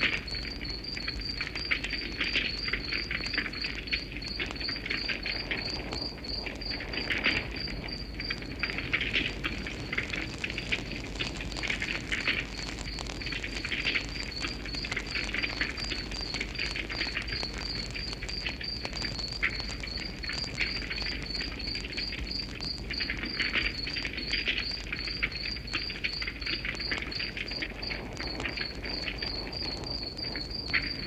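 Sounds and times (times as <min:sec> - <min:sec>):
cricket chirping: 0:00.0 - 0:31.0
wood fire crackling: 0:00.0 - 0:31.0.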